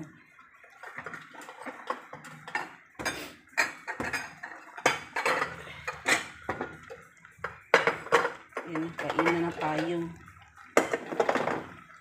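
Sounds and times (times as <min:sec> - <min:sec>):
spatula knocking and scraping pot: 0:01.4 - 0:10.0.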